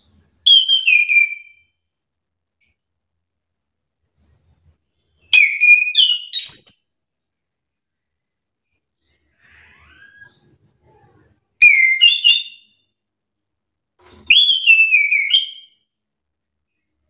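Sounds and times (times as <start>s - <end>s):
thrush whistled song: 5.3s - 7.0s, 11.6s - 12.9s, 14.3s - 15.9s.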